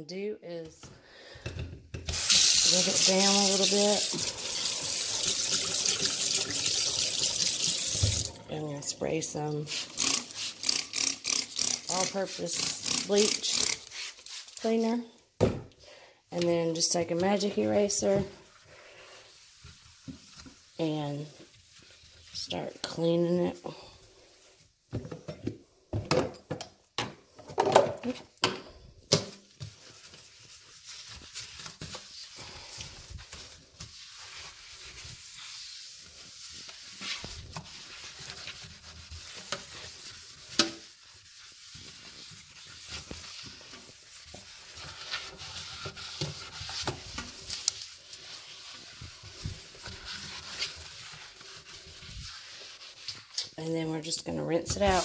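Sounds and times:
sponge scrubbing a sink: 2.1s - 15.0s, 16.4s - 24.9s, 29.3s - 55.0s.

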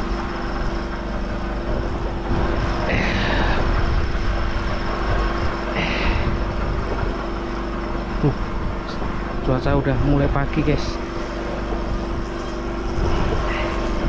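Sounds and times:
engine drone: 0.0s - 14.0s.

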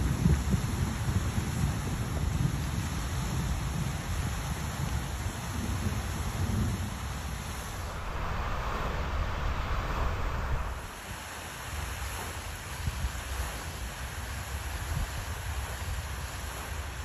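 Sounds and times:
wind buffeting microphone: 0.0s - 11.2s
rain falling on water: 0.0s - 11.8s.

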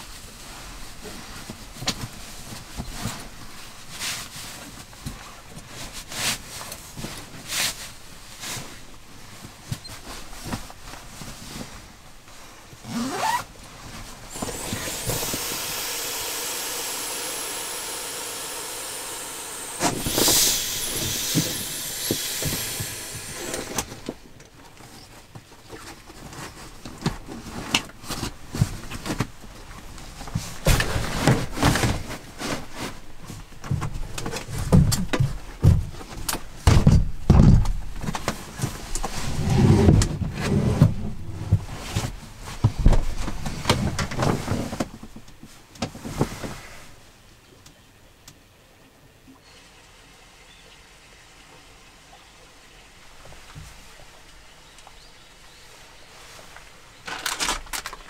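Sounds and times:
sleeping bag rasping: 12.8s - 24.0s.

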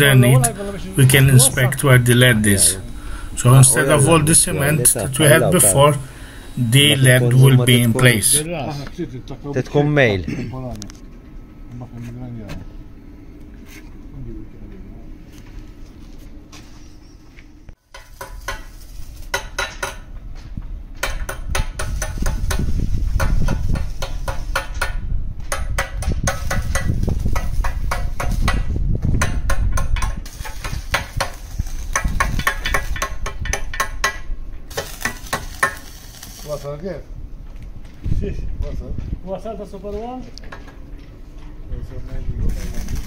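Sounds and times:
arc welding crackling: 0.0s - 8.9s, 17.7s - 20.2s, 21.0s - 37.1s, 42.0s - 43.0s.

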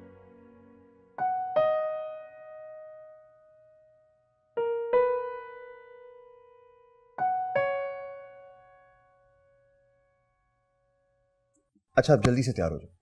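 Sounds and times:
slow sparse piano music: 0.0s - 11.5s.

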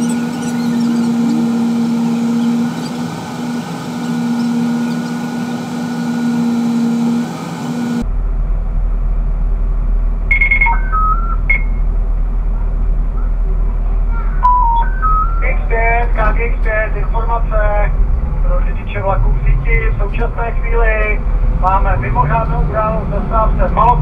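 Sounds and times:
short electronic beeps: 0.0s - 3.0s, 10.3s - 11.8s, 14.4s - 15.6s
lower hum: 0.0s - 24.0s
tram hum with held tones: 0.0s - 24.0s.

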